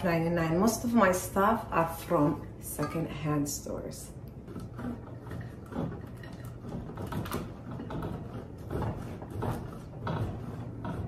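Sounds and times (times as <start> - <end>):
cheese grating on metal grater: 4.4 - 11.0.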